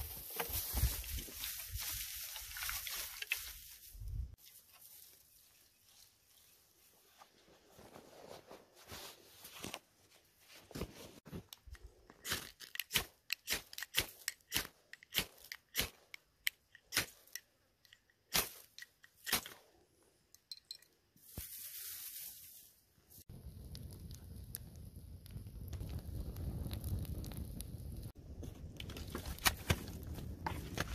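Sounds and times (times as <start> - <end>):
tinder crunching and clicking: 11.4 - 19.6, 23.7 - 30.9
flame hiss: 21.4 - 28.2.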